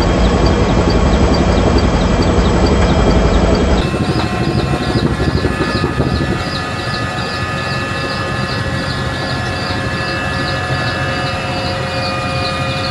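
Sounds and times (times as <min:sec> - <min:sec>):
helicopter running: 0:00.0 - 0:12.9.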